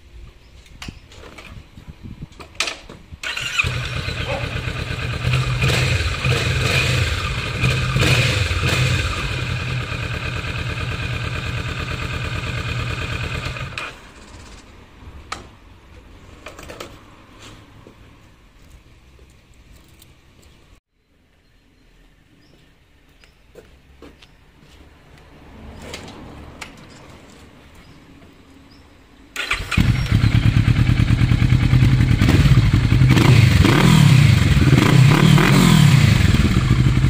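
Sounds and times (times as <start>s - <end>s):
motorcycle engine idling and revving: 3.2s - 14.7s, 29.3s - 37.0s.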